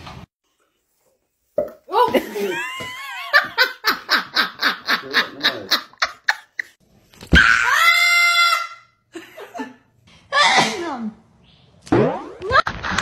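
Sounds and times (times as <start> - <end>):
woman laughing: 2.0 - 6.8
parrot screeching: 7.4 - 9.0.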